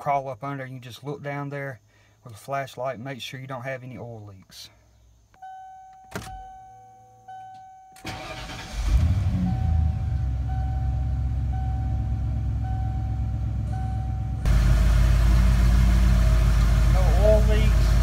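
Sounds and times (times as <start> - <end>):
dashboard warning chime: 5.4 - 8.6, 9.4 - 14.5
ignition click: 5.4 - 9.8
engine cranking and idling: 8.0 - 18.0.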